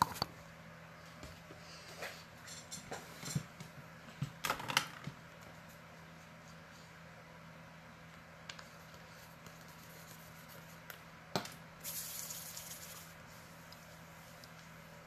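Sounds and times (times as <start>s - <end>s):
spray bottle misting: 11.8s - 13.2s.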